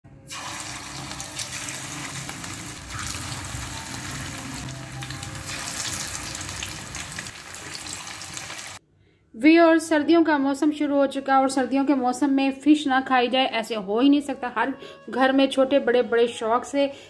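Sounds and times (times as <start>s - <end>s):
fish sizzling in hot oil: 0.3s - 8.8s.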